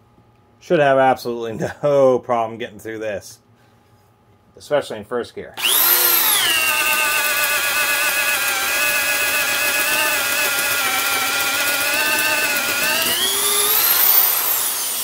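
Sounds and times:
power drill boring into wood: 0:05.6 - 0:15.0.

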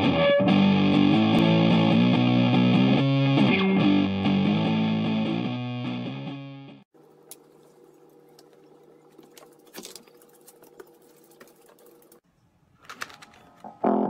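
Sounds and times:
electric guitar music: 0:00.0 - 0:06.8.

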